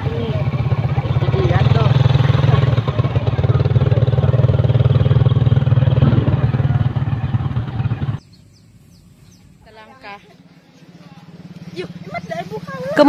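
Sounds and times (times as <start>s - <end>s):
small engine running: 0.0s - 8.2s, 9.4s - 13.0s.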